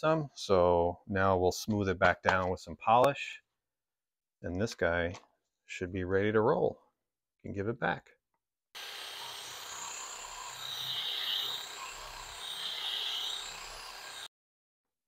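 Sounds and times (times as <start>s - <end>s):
polisher whirring hiss: 8.8s - 14.3s.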